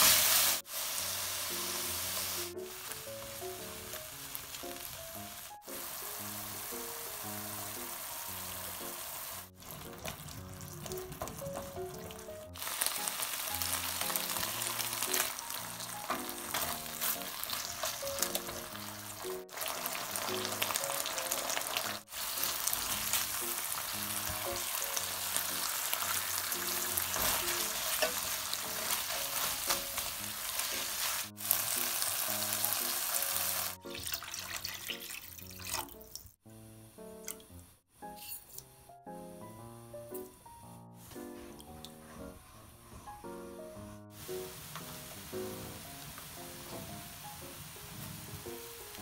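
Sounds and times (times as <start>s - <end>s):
pork sizzling in oil: 0.0s - 36.4s, 44.1s - 49.0s
water poured into pan: 16.9s - 36.3s
spatula stirring: 26.1s - 31.3s.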